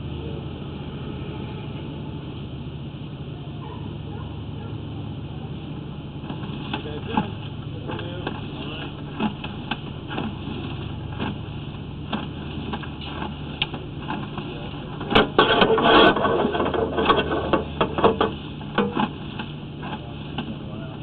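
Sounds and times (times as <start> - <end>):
low machine hum: 0.0 - 21.0.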